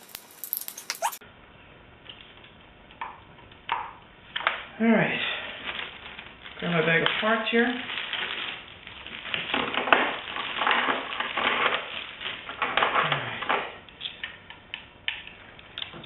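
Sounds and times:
plastic bag crinkling: 0:00.0 - 0:01.2, 0:05.3 - 0:13.5.

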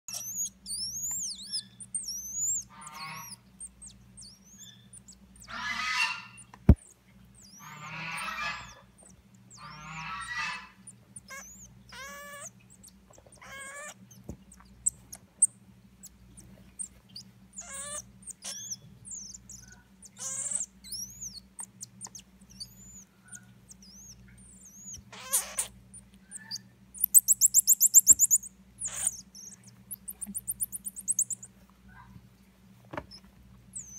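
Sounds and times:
monkeys chirping: 0:00.1 - 0:03.4, 0:09.6 - 0:14.0, 0:17.6 - 0:25.7, 0:26.3 - 0:31.5
low electrical hum: 0:00.1 - 0:33.9.

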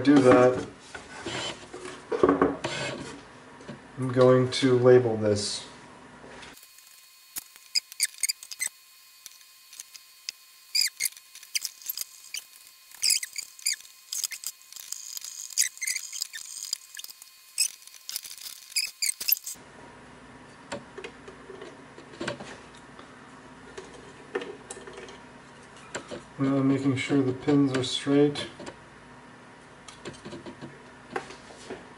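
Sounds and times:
felt-tip marker squeaking: 0:07.7 - 0:08.7, 0:10.7 - 0:17.8, 0:18.4 - 0:19.5.

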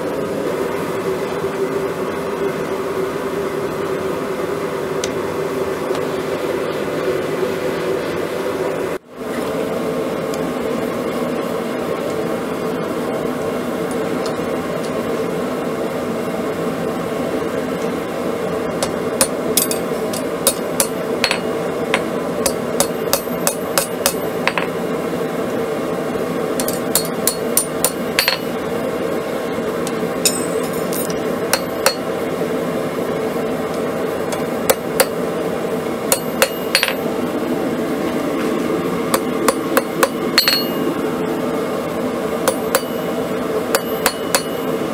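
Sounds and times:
steady rushing hum: 0:09.8 - 0:44.9
hammer striking steel on anvil: 0:18.8 - 0:24.7, 0:26.6 - 0:28.6, 0:29.9 - 0:32.1, 0:34.3 - 0:35.2, 0:36.1 - 0:37.1, 0:39.1 - 0:41.0, 0:42.4 - 0:44.8.

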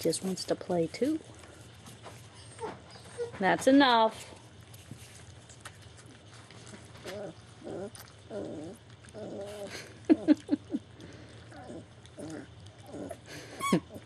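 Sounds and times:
dog whimpering: 0:02.4 - 0:03.4, 0:07.1 - 0:10.8.

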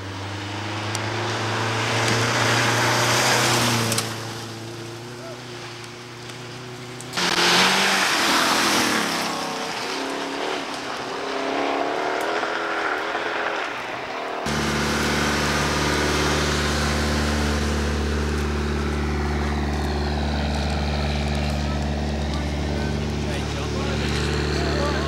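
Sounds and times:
rally car engine revving: 0:00.0 - 0:25.0
loud rushing noise: 0:14.4 - 0:19.3
low engine hum: 0:14.4 - 0:25.0.

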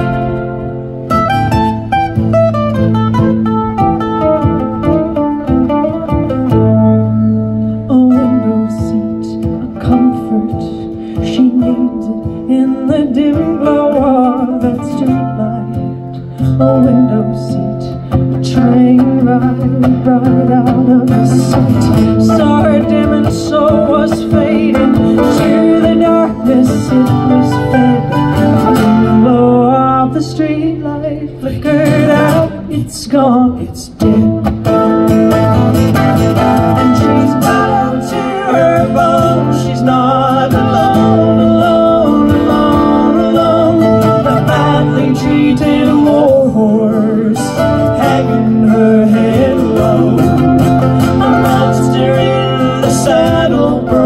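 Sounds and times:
acoustic guitar: 0:00.0 - 0:54.0
mandolin: 0:00.0 - 0:54.0
woman singing: 0:07.9 - 0:16.0, 0:16.6 - 0:34.4, 0:36.7 - 0:54.0.

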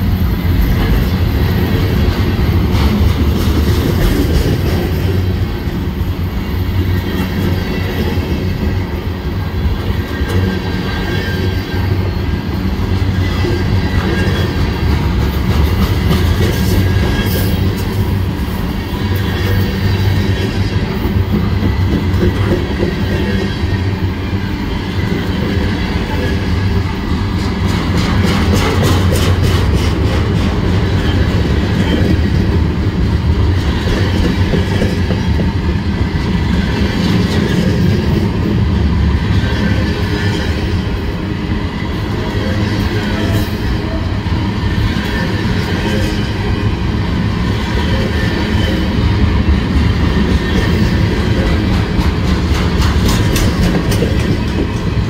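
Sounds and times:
freight train rumbling: 0:00.0 - 0:55.0
rapid wheel clicks on rail joints: 0:50.5 - 0:55.0.

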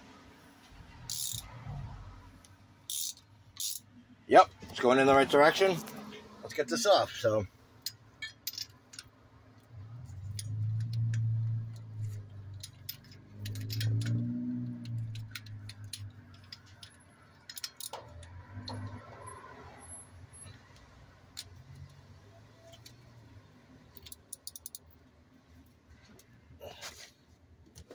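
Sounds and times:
socket ratchet clicking: 0:01.1 - 0:01.5, 0:02.9 - 0:03.9, 0:10.3 - 0:18.8, 0:24.0 - 0:24.9.

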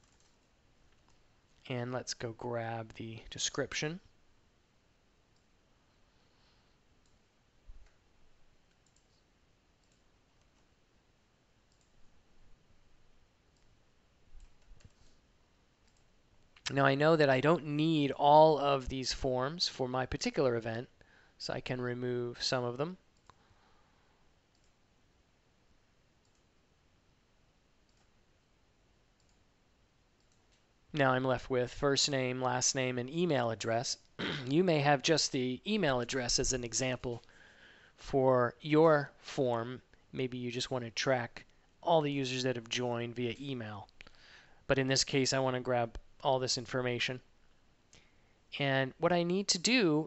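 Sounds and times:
faint computer mouse clicks: 0:15.8 - 0:16.7.

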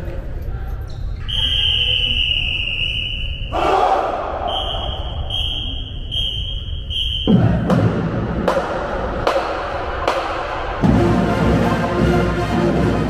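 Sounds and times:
whistle blasts: 0:01.2 - 0:07.6.

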